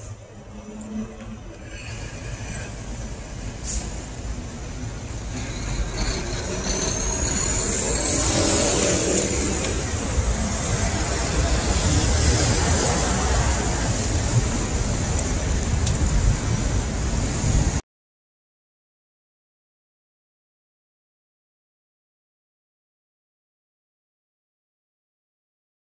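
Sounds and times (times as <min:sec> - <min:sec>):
rising high whine: 0:00.0 - 0:14.9
passing road traffic: 0:00.0 - 0:17.8.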